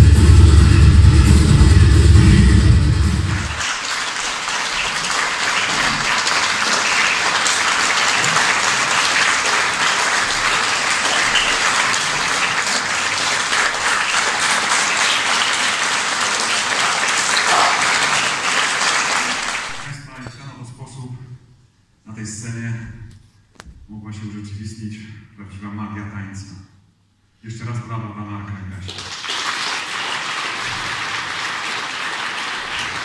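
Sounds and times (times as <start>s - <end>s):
audience applauding: 3.0s - 20.0s, 28.9s - 33.0s.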